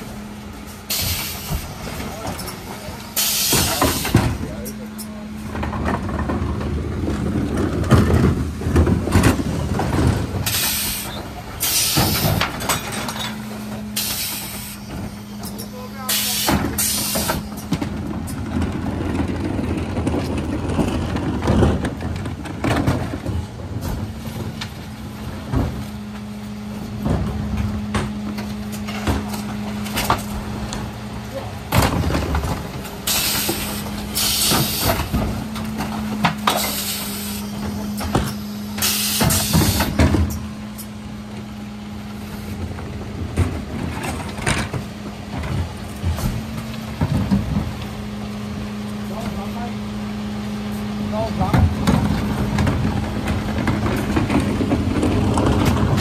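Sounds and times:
truck engine and hydraulics humming: 0.0s - 56.0s
air hissing: 33.1s - 35.1s, 36.5s - 40.0s.

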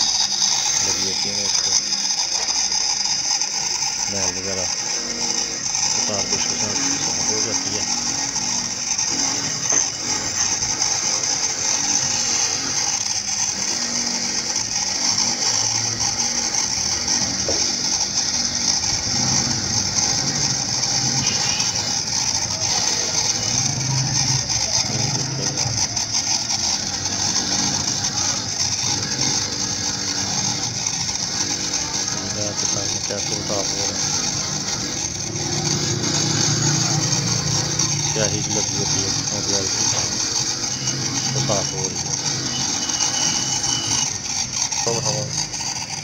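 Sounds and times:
bench grinder motor hum: 0.0s - 46.0s
wire brush scratching metal: 13.4s - 46.0s.

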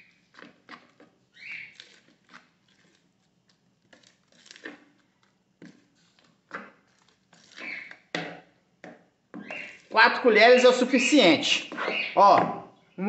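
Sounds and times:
spoon stirring thick batter: 0.0s - 12.9s.

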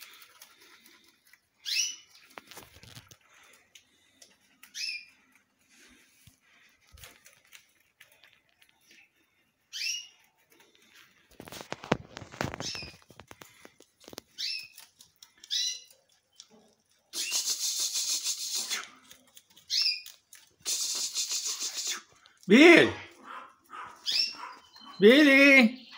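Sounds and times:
canary chirps: 1.6s - 3.0s, 4.6s - 5.4s, 8.8s - 10.4s, 12.4s - 22.0s, 23.2s - 25.9s
canary rapid trill: 17.2s - 22.0s.

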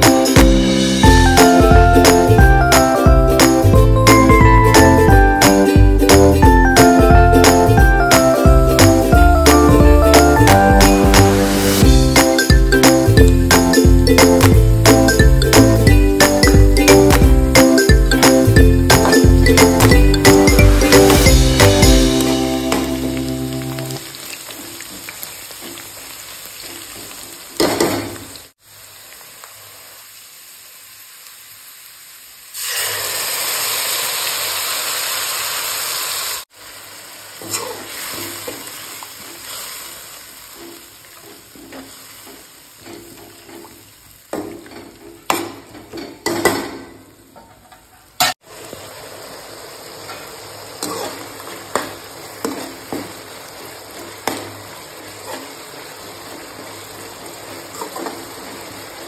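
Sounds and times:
onions sizzling in oil: 10.4s - 16.4s, 20.7s - 46.0s, 47.0s - 59.0s
metal spatula scraping a pan: 50.8s - 51.3s.

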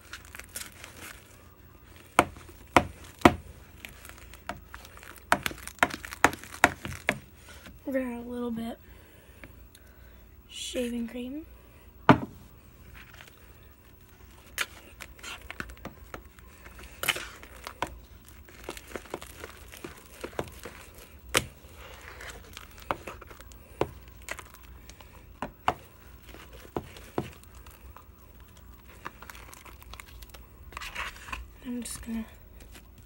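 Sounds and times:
slime crinkling: 0.0s - 7.8s, 12.7s - 33.0s
slime popping and crackling: 2.1s - 7.2s, 14.4s - 31.2s.

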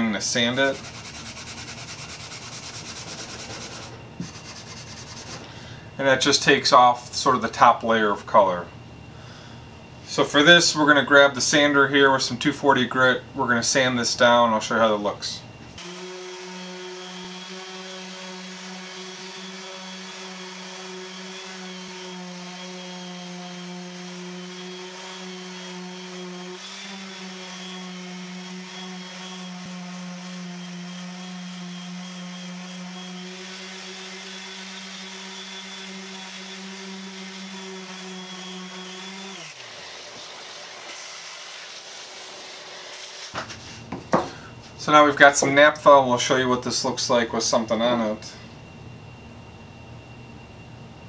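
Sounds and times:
orbital sander running: 0.4s - 5.5s, 15.8s - 44.1s.

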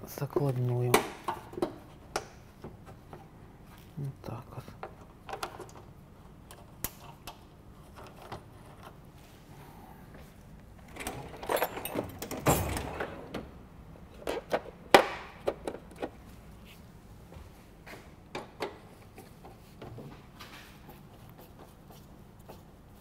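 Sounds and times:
clicks and knocks of car parts: 0.4s - 3.2s, 14.1s - 16.2s, 18.3s - 20.3s.

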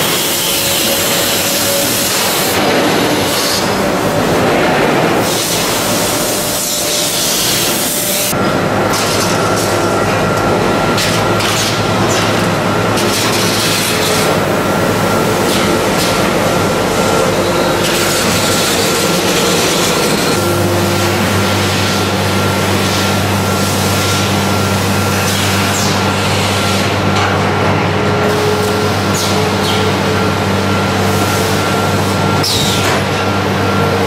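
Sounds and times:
low motor hum: 0.0s - 25.1s
mechanical rumble of motors and conveyors: 0.0s - 34.0s.

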